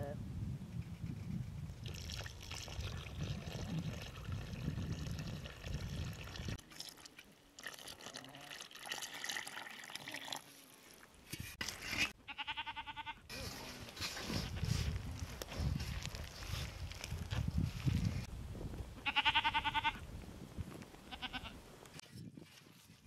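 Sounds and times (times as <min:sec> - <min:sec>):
milk pouring into a bowl: 0:01.8 - 0:10.5
animal bleating: 0:12.2 - 0:13.3, 0:19.0 - 0:20.0, 0:21.1 - 0:21.6.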